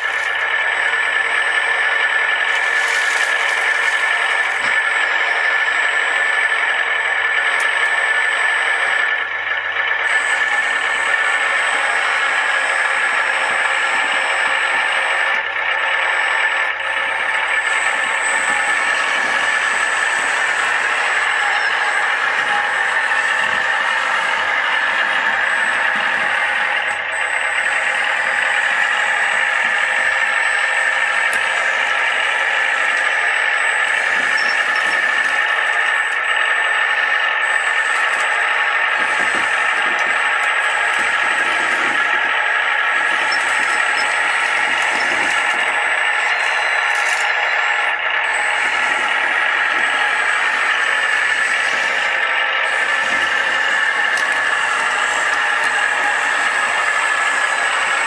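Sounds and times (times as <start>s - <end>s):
electric motor whine: 0.0s - 58.0s.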